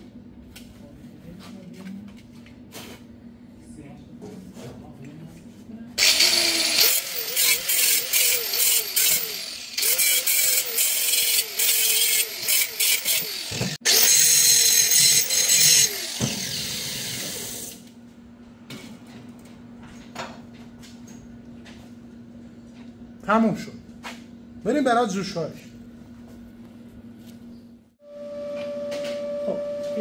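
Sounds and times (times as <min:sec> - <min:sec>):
angle grinder grinding metal: 0:06.0 - 0:17.8.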